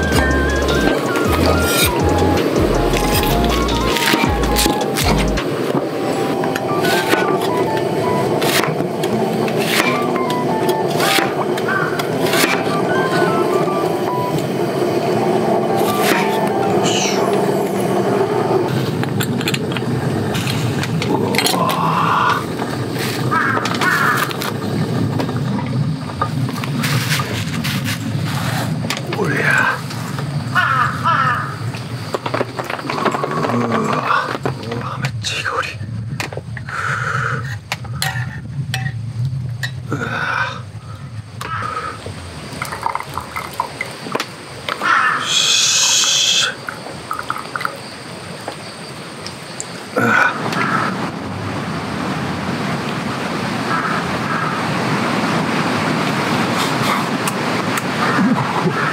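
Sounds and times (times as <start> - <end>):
broth simmering crackle: 0.0 - 58.9
crow cawing: 11.7 - 12.0, 23.3 - 24.4, 30.5 - 31.6, 40.9 - 42.0, 44.8 - 46.6, 50.5 - 51.0, 53.7 - 54.6
liquid splashing pour: 42.6 - 44.1, 46.6 - 47.9.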